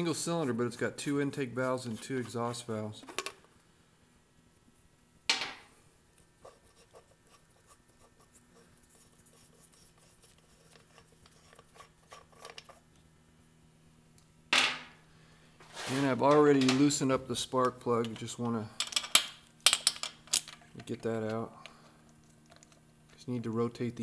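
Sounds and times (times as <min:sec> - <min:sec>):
small metal clicks and scrapes: 0:09.0 - 0:13.0, 0:19.9 - 0:23.4.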